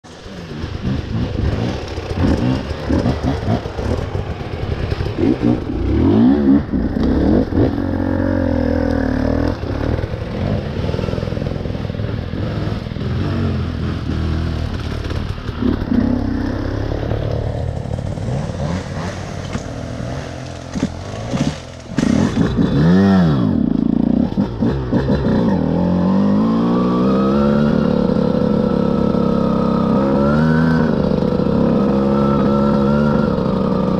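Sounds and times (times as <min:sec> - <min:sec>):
motorcycle engine revving: 0:00.0 - 0:33.9
bike clattering over rough ground: 0:19.4 - 0:22.9.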